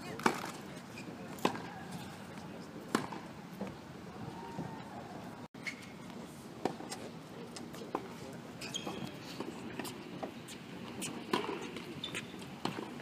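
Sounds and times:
faint voices: 0.0 - 5.5
tennis balls struck by rackets: 1.3 - 1.8, 2.9 - 3.3, 11.1 - 13.0.

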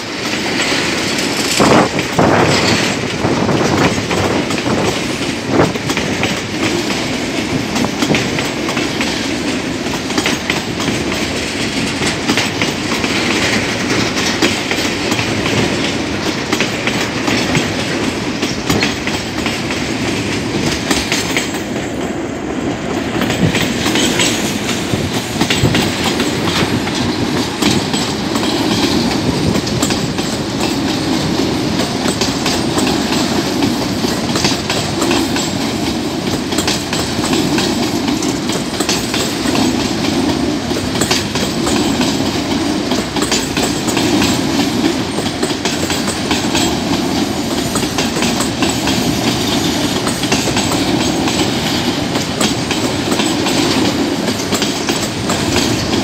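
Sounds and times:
train wheels rumbling on rails: 0.0 - 56.0
wheels clattering over rail joints: 0.0 - 56.0.

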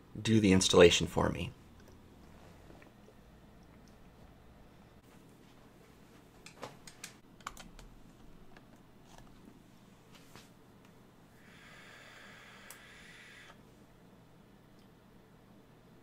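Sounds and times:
soft hiss: 9.6 - 16.0.

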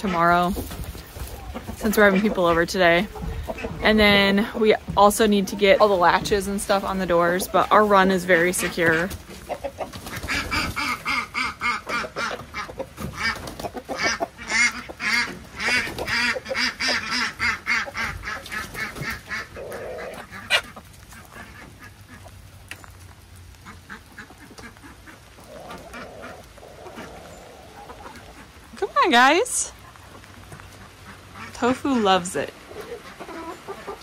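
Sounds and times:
chickens clucking and squawking: 0.0 - 34.0.

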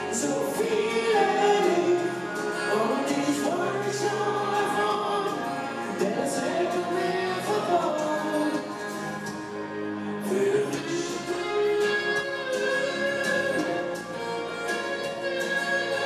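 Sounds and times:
woman and man singing: 0.0 - 8.8, 10.2 - 12.0
acoustic guitar: 0.0 - 16.0.

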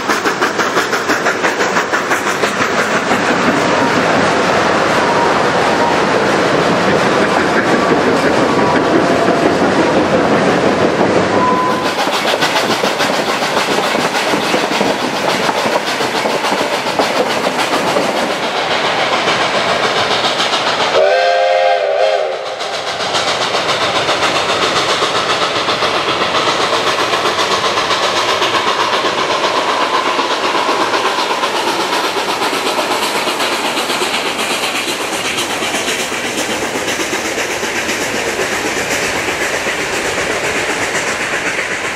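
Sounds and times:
steam train running: 0.0 - 41.9
train wheels clickety-clack: 0.0 - 41.9
steam whistle blast: 11.4 - 12.0, 20.9 - 22.6.

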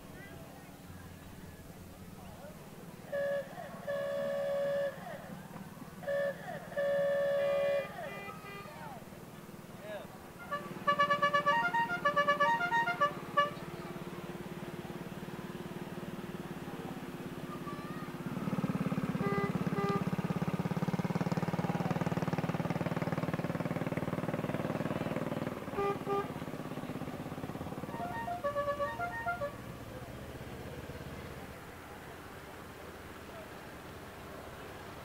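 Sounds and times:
musical car horn tune: 3.1 - 5.2, 6.0 - 8.9, 10.4 - 13.8, 19.0 - 20.5, 25.6 - 29.8
short horn beeps: 10.4 - 13.6, 19.2 - 20.2, 25.7 - 26.4, 27.9 - 29.6
small engine buzzing: 17.6 - 29.6.

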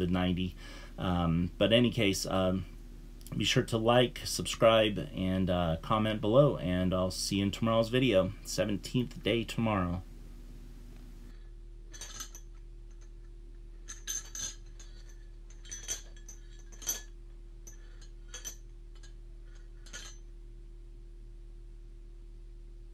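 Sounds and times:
steady low hum: 0.0 - 22.9
chain shackles clinking: 11.9 - 20.3.

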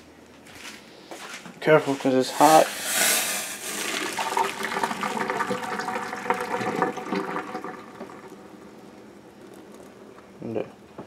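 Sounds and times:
water pouring into sink: 3.6 - 8.7.

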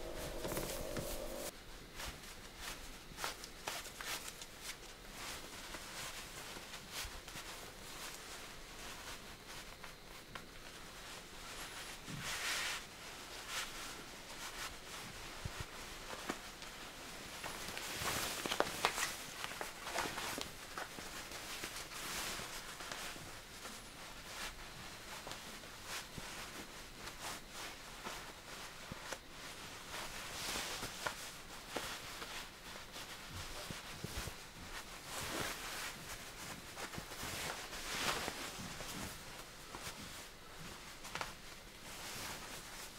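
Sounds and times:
fabric rustling: 0.0 - 1.5, 10.6 - 42.9.

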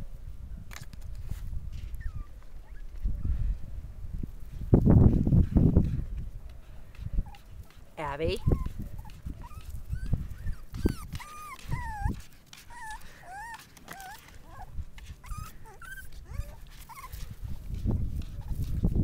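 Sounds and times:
puppies whimpering and whining: 1.8 - 3.4, 8.3 - 17.4.

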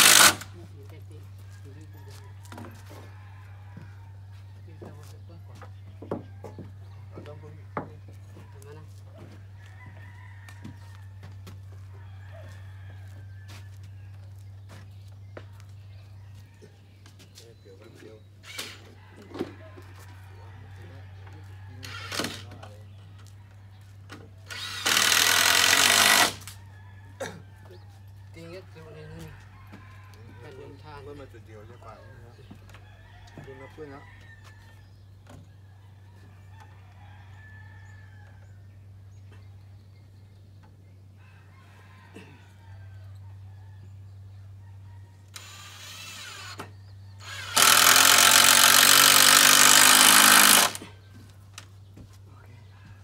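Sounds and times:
power drill drilling into wood: 0.0 - 0.5, 21.8 - 22.4, 24.5 - 26.5, 45.4 - 50.8.

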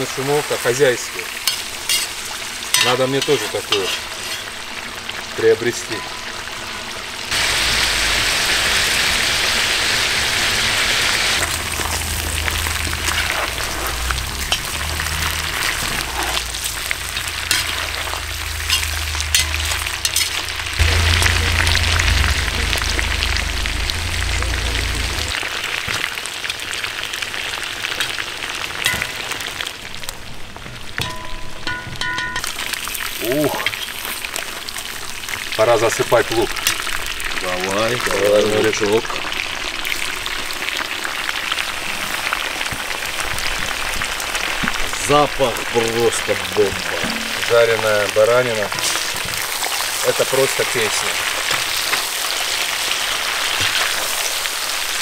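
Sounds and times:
meat sizzling in hot oil: 0.0 - 31.7, 32.4 - 55.0
metal skimmer scraping pot: 11.4 - 21.7, 46.9 - 47.7.

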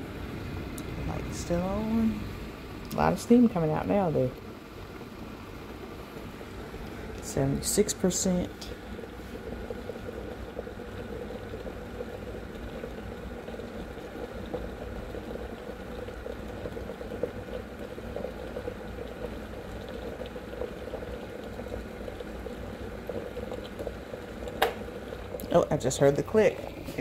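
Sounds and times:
steam venting: 0.0 - 27.0
water boiling in electric kettle: 0.0 - 27.0.

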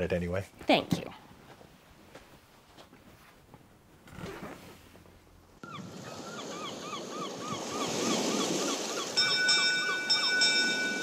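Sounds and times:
ocean surf: 5.6 - 11.0.

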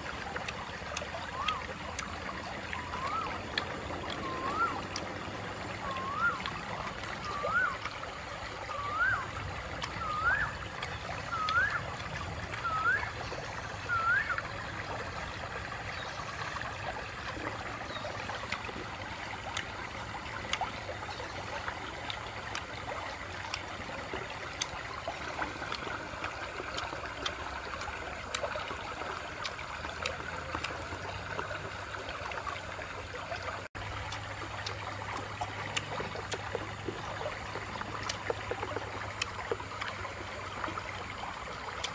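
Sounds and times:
stream running over stones: 0.0 - 41.9
short rising whistled call: 2.8 - 3.5, 4.1 - 4.9, 5.8 - 8.0, 8.6 - 14.6.

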